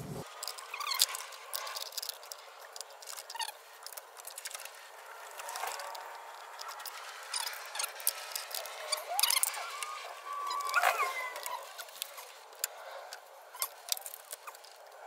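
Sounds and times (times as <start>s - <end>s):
short rubbery squeaks: 0.0s - 2.2s, 3.0s - 12.9s
small clicks and rustles: 0.2s - 15.0s.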